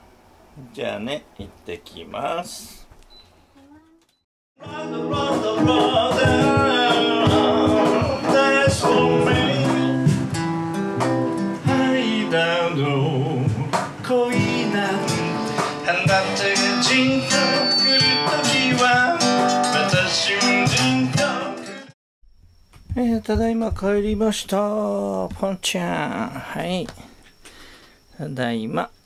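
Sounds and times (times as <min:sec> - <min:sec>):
man singing: 0:04.6 - 0:10.3, 0:11.6 - 0:22.0, 0:22.9 - 0:26.9
acoustic guitar strumming: 0:04.6 - 0:21.8.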